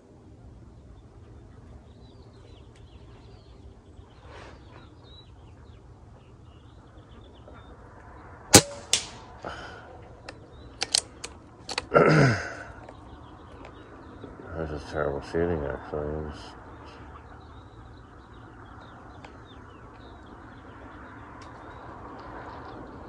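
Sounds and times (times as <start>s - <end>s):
quieter echoing crack: 7.4s - 11.9s
rifle shots: 8.5s - 9.3s.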